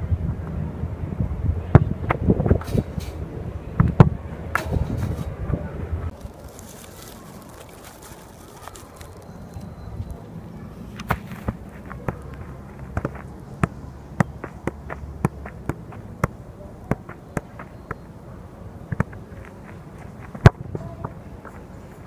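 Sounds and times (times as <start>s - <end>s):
football thudding on feet: 11.0s - 18.0s, 18.9s - 21.1s.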